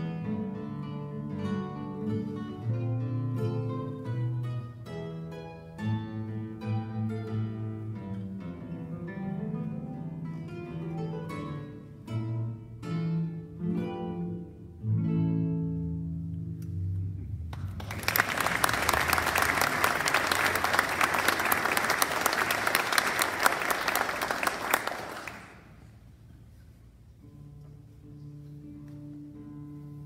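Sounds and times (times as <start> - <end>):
classical guitar plucking: 0.0 - 17.8, 25.9 - 30.0
audience applauding: 17.5 - 25.9.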